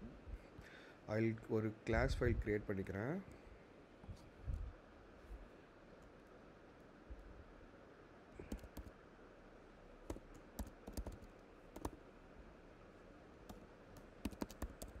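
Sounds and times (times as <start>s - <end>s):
keyboard key clicks: 8.5s - 8.9s, 13.5s - 15.0s.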